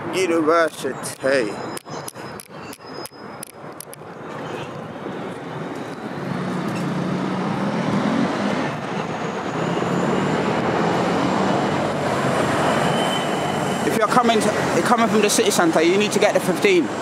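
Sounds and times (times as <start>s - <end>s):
heavy vehicle engine and tyres: 0.0s - 17.0s
road traffic: 0.0s - 17.0s
thin high squeal: 1.0s - 3.4s, 12.6s - 13.9s.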